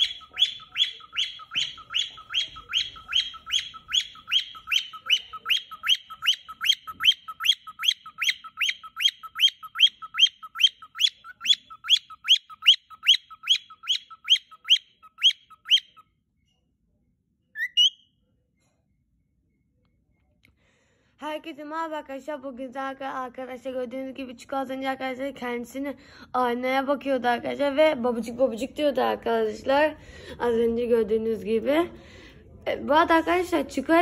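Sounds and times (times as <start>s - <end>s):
cockatiel chirping: 0.0s - 16.0s, 17.6s - 18.0s.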